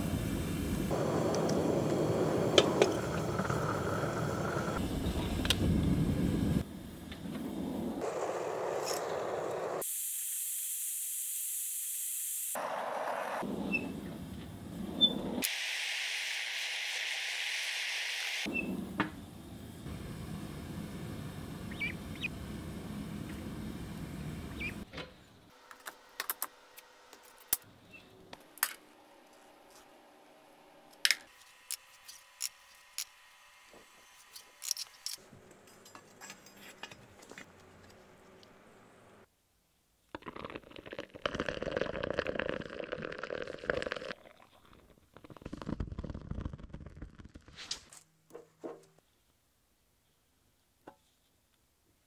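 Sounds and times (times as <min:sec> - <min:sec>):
molten metal crackling and spitting: 0:00.0 - 0:09.8, 0:40.1 - 0:47.5.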